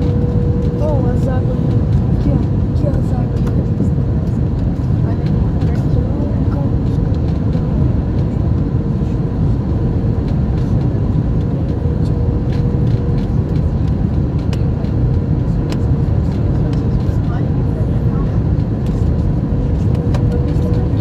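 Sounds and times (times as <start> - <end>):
engine and airflow rumble: 0.0 - 21.0.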